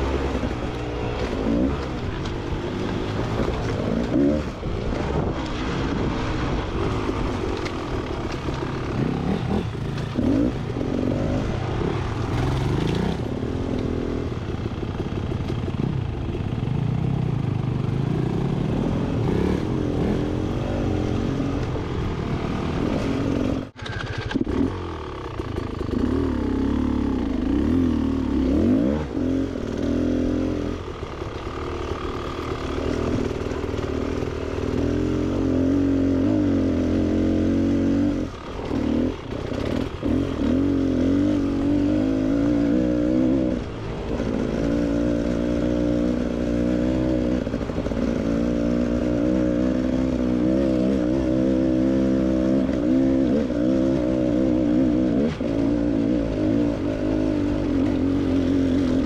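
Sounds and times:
dirt bike engine revving: 8.1 - 14.3, 18.0 - 30.9, 31.7 - 59.0.

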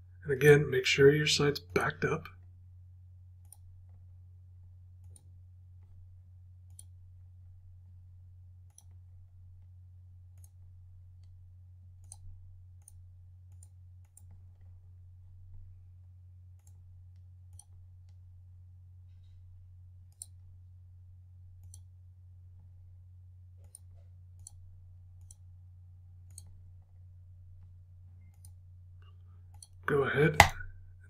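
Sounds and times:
computer mouse clicking: 3.4 - 4.0, 5.0 - 5.3, 6.6 - 7.0, 8.6 - 9.0, 10.4 - 11.4, 12.0 - 14.7, 16.6 - 18.2, 20.1 - 20.4, 21.6 - 21.9, 23.6 - 24.6, 25.2 - 25.4, 26.2 - 26.6, 28.3 - 28.6, 29.5 - 29.8.

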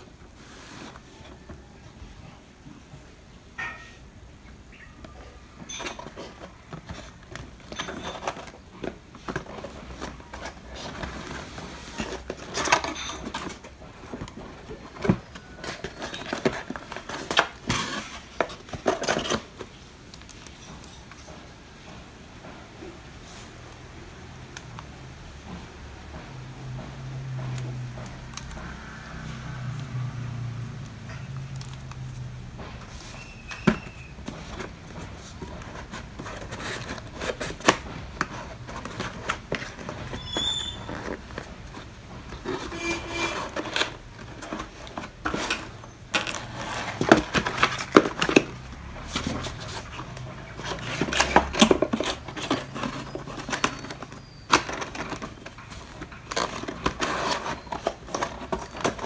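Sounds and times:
cardboard scraping and knocking: 5.6 - 19.8, 31.9 - 59.0.

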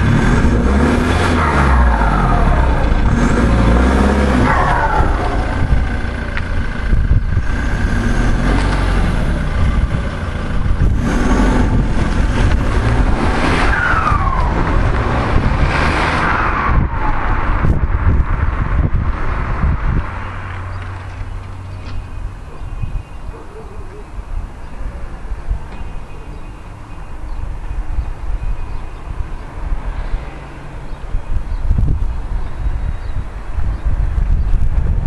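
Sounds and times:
diesel engine revving: 0.0 - 21.8.

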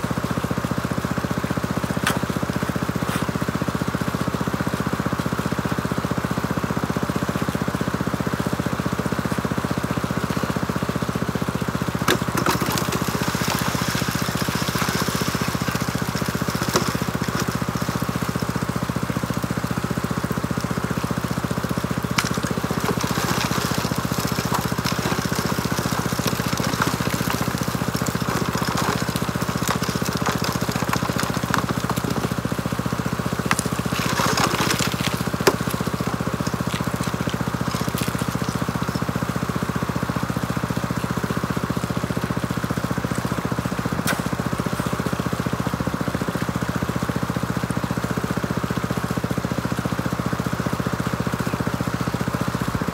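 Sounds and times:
small gasoline engine running: 0.0 - 52.9
water flowing: 11.9 - 41.2.

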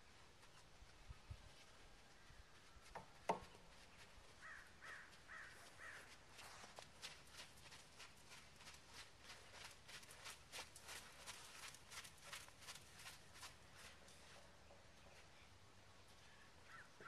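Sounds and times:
horse walking on sand: 0.0 - 16.8
crow cawing: 4.4 - 6.1, 16.7 - 17.0.

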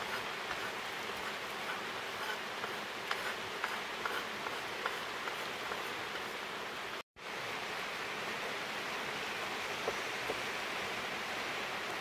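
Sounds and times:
steady rain hiss: 0.0 - 12.0.

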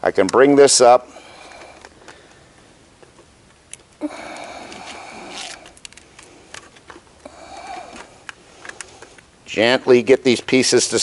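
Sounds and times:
plastic belt links scraping: 3.0 - 7.1.

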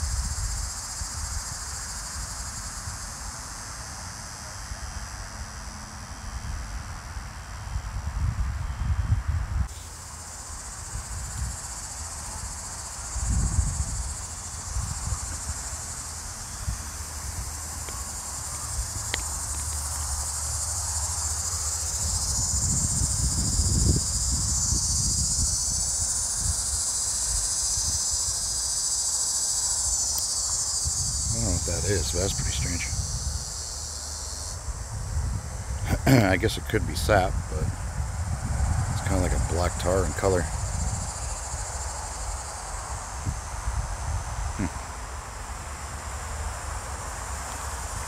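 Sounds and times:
insect shrill calling: 9.7 - 34.9, 44.3 - 45.0.

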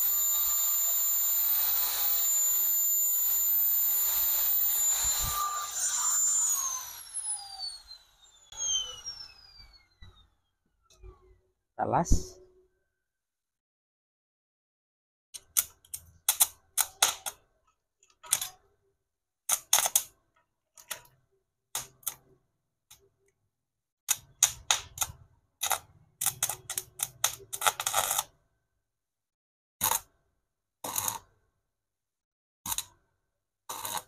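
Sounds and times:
arc welder crackling: 0.0 - 8.0, 24.1 - 28.3.

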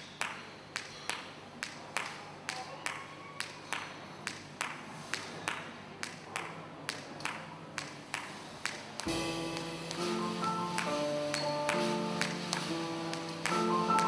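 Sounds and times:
cymbal tapping steady beat: 8.7 - 14.0.

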